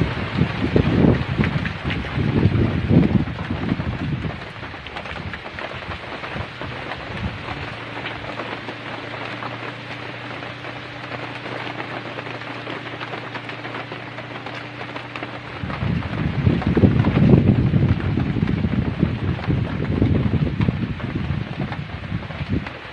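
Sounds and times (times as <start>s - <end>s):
heavy rain falling: 0.0s - 22.9s
steady low hum: 0.0s - 22.9s.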